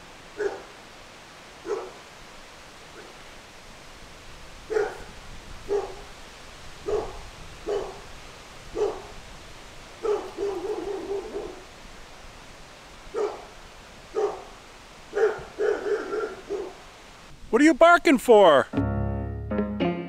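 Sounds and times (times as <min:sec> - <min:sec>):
dog barking: 0:00.4 - 0:00.8, 0:01.6 - 0:02.1, 0:02.9 - 0:03.2, 0:04.7 - 0:06.2, 0:06.8 - 0:08.1, 0:08.7 - 0:09.2, 0:10.0 - 0:11.7, 0:13.1 - 0:16.8.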